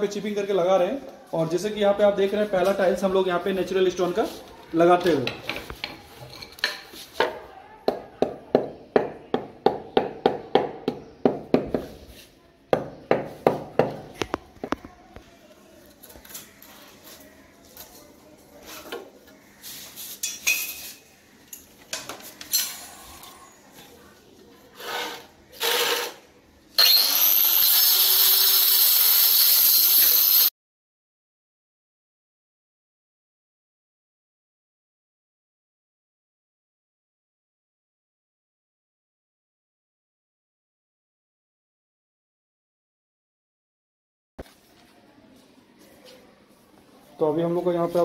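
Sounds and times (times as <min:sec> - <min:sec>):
stone cutter cutting stone: 0:24.8 - 0:26.2, 0:26.8 - 0:30.5.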